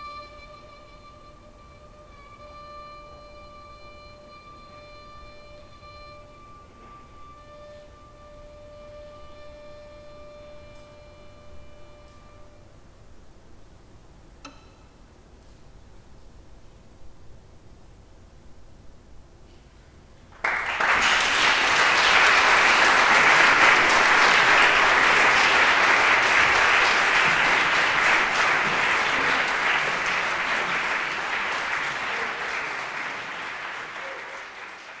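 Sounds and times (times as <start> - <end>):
audience applauding: 20.3 - 35.0.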